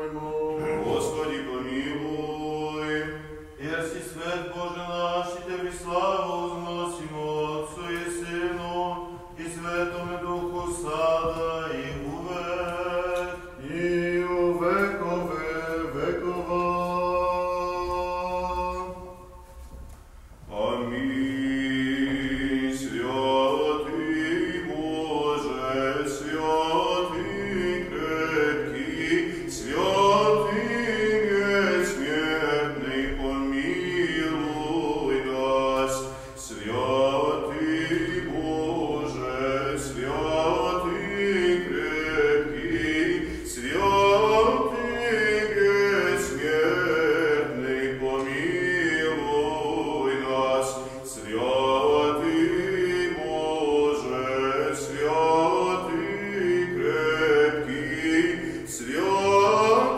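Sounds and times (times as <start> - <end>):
men chanting melody: 0.0 - 19.1, 20.5 - 59.9
low held vocal drone: 0.0 - 19.6, 20.5 - 59.9.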